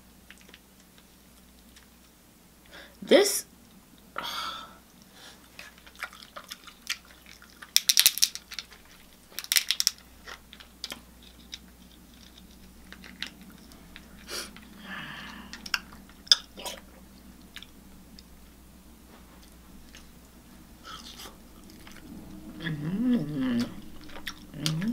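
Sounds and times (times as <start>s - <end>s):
person chewing: 5.5s - 18.4s, 19.4s - 24.9s
crackling crunches: 5.6s - 14.7s.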